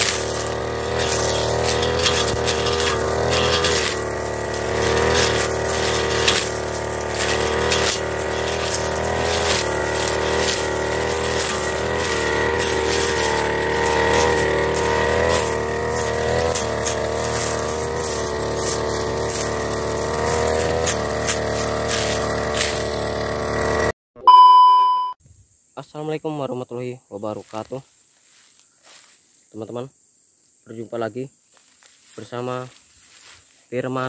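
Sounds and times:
grass stalks crackling: 0.0 - 23.4, 27.4 - 29.3, 31.5 - 33.7
brush cutter running: 0.0 - 24.0.

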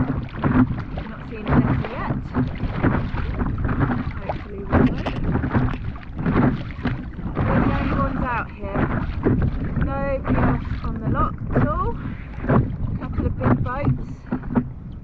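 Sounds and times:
paddle splashing into water: 0.0 - 15.0
wind buffeting microphone: 0.0 - 15.0.

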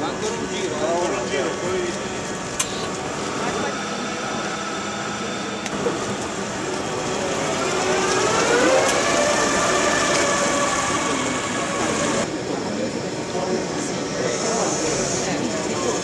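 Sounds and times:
tractor electric whine: 0.0 - 12.3.

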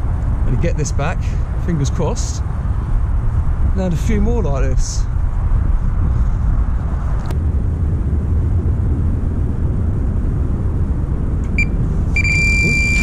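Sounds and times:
wind buffeting microphone: 0.0 - 13.0
bite alarm electronic beeps: 11.6 - 13.0.

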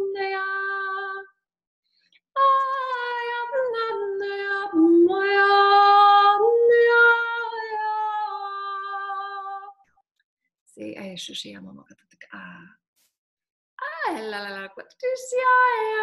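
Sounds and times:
woman singing wordless tones: 0.0 - 1.4, 2.4 - 9.8, 13.8 - 16.0.

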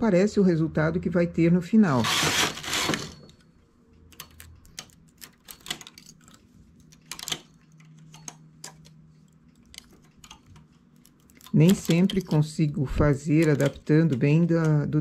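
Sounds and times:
knitting machine carriage sliding: 1.9 - 3.3, 4.2 - 15.0
small metallic clicks: 3.1 - 15.0.

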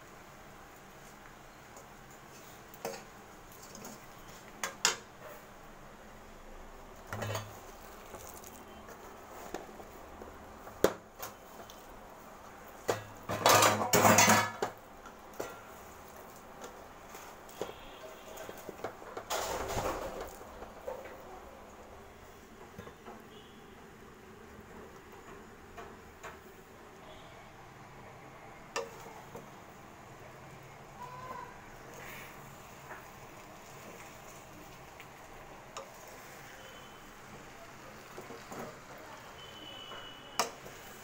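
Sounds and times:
metal pot and utensils clinking: 2.3 - 5.4, 7.1 - 8.8, 12.8 - 16.7.

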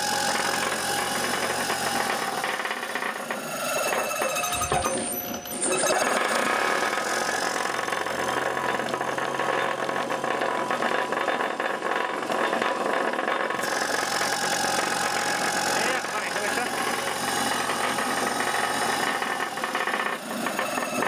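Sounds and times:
compressor running with rattling pulse: 0.0 - 21.0.

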